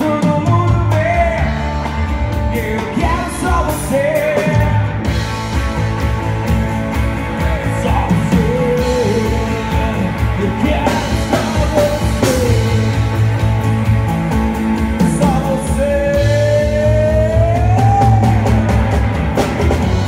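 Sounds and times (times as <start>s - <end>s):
man singing: 0.0s - 5.2s, 7.2s - 13.5s, 14.8s - 18.8s
live pop rock band: 0.0s - 20.0s.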